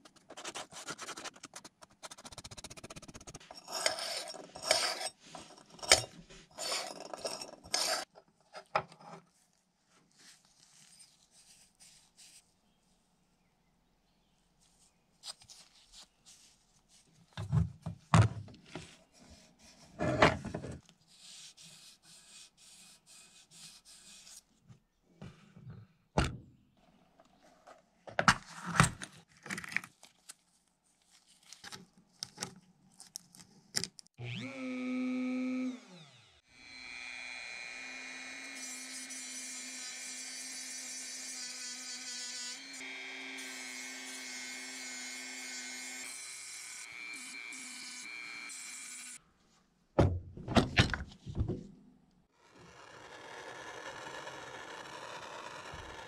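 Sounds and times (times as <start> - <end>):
rotary tool grinding metal: 3.4 - 8.1, 52.4 - 56.0.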